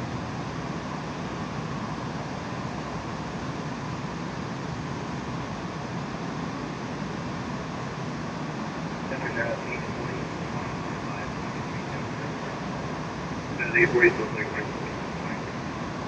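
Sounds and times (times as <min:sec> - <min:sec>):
aircraft engine noise: 0:00.2 - 0:16.0
airflow past aircraft fuselage: 0:06.3 - 0:16.0.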